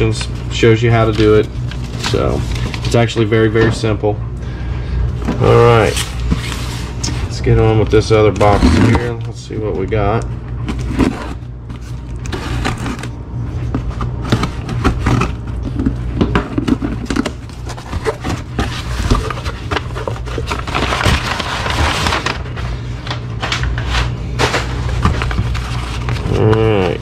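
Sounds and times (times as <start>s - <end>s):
packing paper rustling: 0.0s - 3.6s, 5.3s - 27.0s
steady low hum: 0.0s - 27.0s
cardboard flaps scraping: 10.7s - 27.0s.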